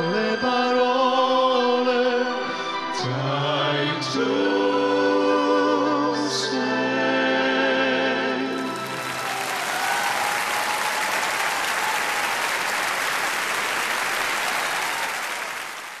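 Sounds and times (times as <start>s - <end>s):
audience applause: 8.5s - 16.0s.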